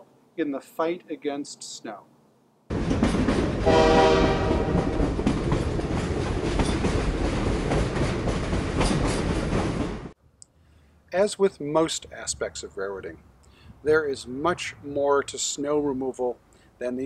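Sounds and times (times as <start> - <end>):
train rumbling on rails: 2.7 - 10.2
train horn blast: 3.6 - 4.9
rail joint clicks: 4.7 - 10.5.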